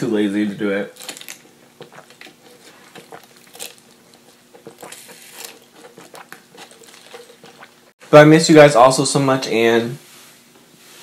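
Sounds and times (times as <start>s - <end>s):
sipping through a straw: 1.4s - 7.9s
hissing sucks through straw: 1.9s - 7.8s.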